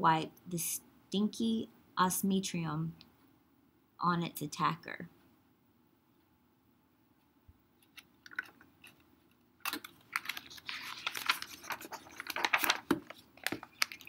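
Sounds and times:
paper crinkling and rustling: 7.8s - 14.0s.

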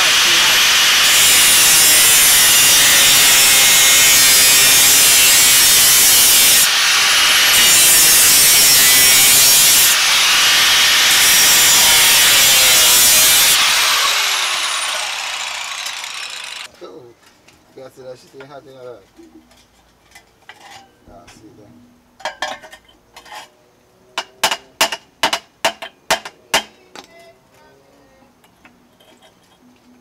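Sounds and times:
angle grinder cutting metal pipe: 0.0s - 16.7s
grinder disc winding down: 6.6s - 16.7s.

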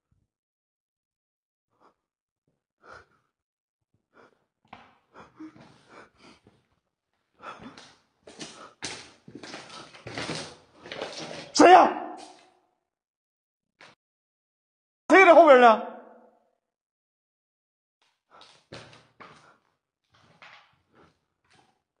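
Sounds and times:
breathing: 2.8s - 3.3s, 4.1s - 4.4s, 5.1s - 6.6s, 18.3s - 19.8s
footsteps on gritty concrete: 7.6s - 11.6s.

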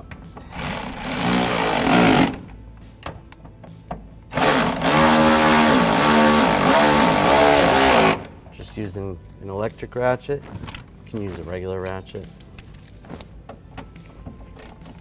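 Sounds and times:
electric ratchet whining: 0.5s - 2.6s, 4.3s - 8.4s.

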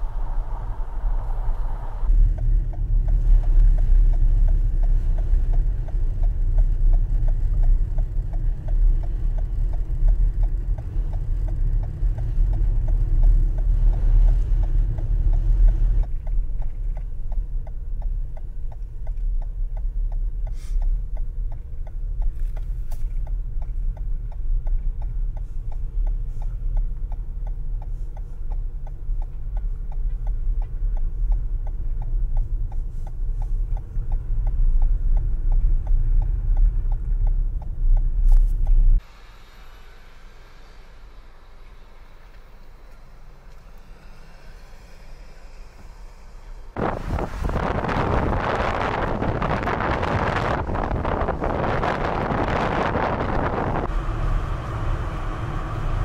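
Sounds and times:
low rumble: 0.0s - 39.0s, 40.5s - 56.0s.

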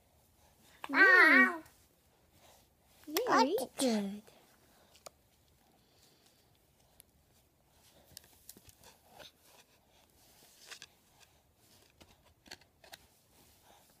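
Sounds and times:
faint small clicks and rustles: 4.2s - 14.0s.

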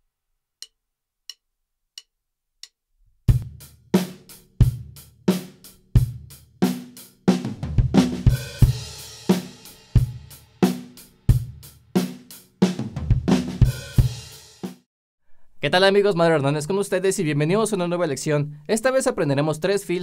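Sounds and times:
kick and snare groove: 3.3s - 14.8s
tom drum fill: 6.0s - 14.3s.

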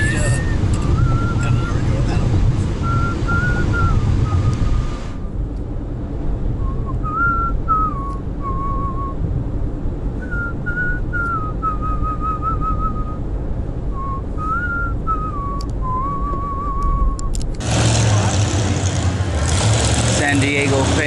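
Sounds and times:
person whistling a tune: 0.0s - 1.8s, 2.8s - 4.6s, 6.6s - 9.2s, 10.2s - 13.2s, 14.0s - 17.3s
car road noise: 0.0s - 21.0s.

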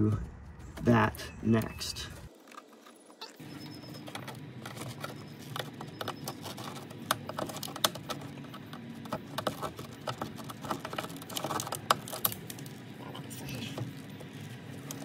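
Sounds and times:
plastic clips clicking and rattling: 3.9s - 12.8s.

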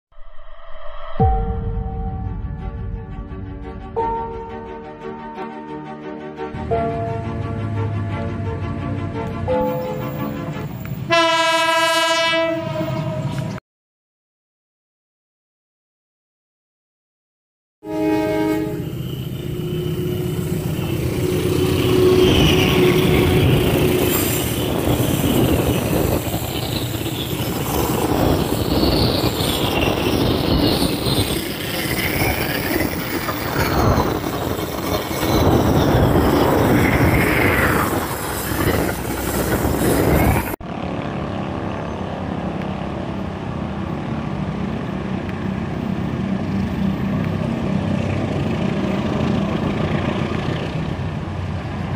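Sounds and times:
locomotive engine droning: 17.9s - 51.9s
wheels squealing: 18.7s - 40.6s
train coaches clattering over rails: 20.3s - 40.6s.

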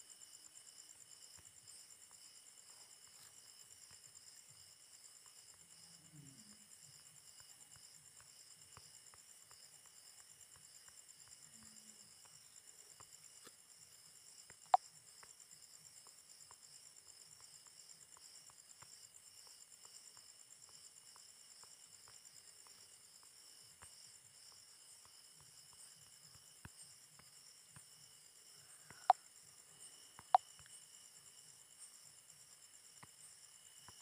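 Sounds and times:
insect chirring: 0.0s - 34.0s.

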